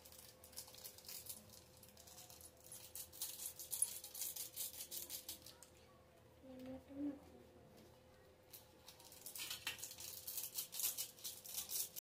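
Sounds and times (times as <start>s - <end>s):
foil sachet crinkling and rattling: 0.0s - 5.6s, 8.9s - 12.0s.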